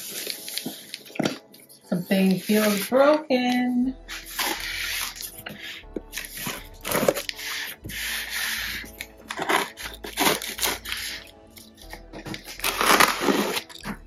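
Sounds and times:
faint background music: 0.0 - 14.0
cardboard box rustling and scraping: 4.2 - 11.2.

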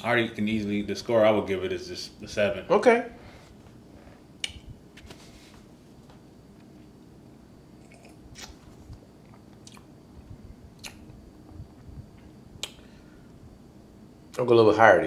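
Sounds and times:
soft lip smacks and clicks: 4.4 - 4.7, 9.2 - 9.9, 10.8 - 11.2, 12.6 - 12.8.

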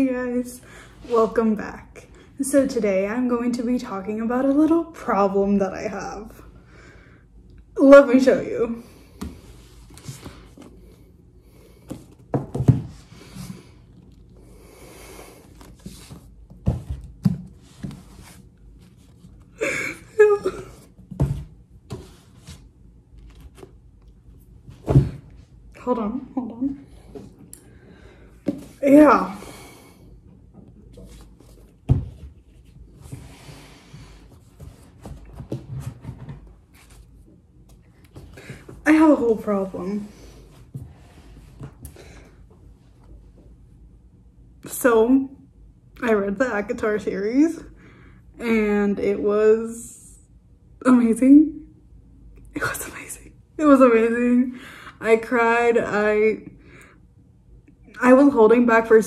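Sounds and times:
books thumping and knocking: 11.9 - 13.0
books sliding and rustling: 15.5 - 19.4.

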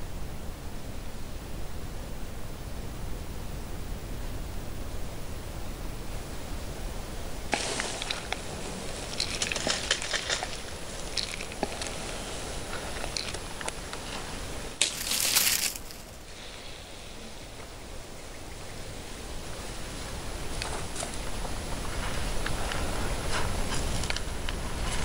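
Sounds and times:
loud burst of hiss: 6.7 - 17.6
dry crunching and crackling: 7.5 - 16.2.

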